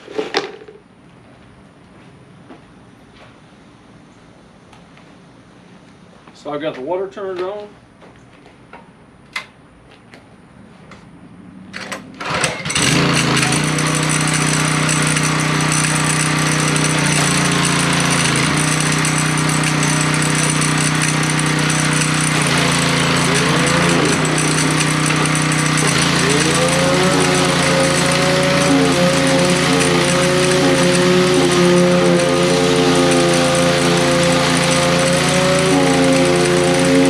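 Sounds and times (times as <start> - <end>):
clanking inside machine: 11.8 - 37.0
pressure washer engine starting: 11.8 - 37.0.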